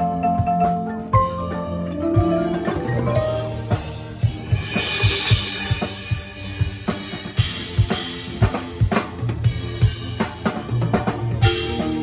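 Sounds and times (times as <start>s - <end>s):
marimba struck with mallets: 0.0s - 6.3s, 10.7s - 12.0s
drum hits and snare strokes: 0.0s - 12.0s
cymbal crashes: 3.8s - 8.2s.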